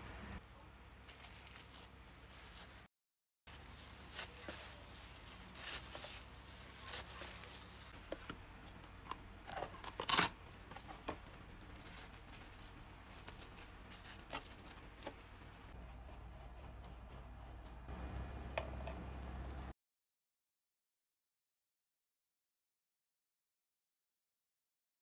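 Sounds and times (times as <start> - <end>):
thin plastic crinkling: 0.4 - 2.9, 3.5 - 8.2, 8.8 - 15.6.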